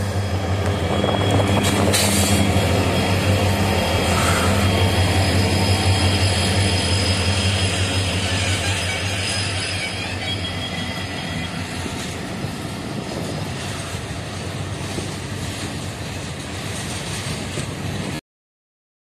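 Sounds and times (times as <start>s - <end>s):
train wheels clattering over rails: 0.0s - 9.5s
diesel locomotive hum: 0.0s - 18.2s.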